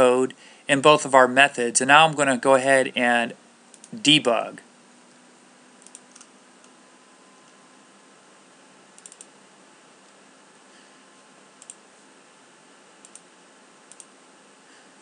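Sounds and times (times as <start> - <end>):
steady low hiss: 0.0 - 15.0
computer clicks: 5.8 - 6.3, 9.0 - 9.4, 11.6 - 11.8, 13.0 - 13.3, 13.9 - 14.1.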